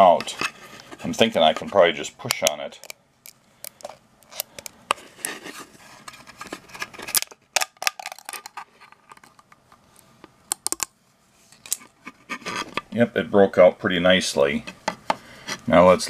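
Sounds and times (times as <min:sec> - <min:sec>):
plastic cracking and snapping: 0:06.8 - 0:09.5, 0:10.5 - 0:10.9.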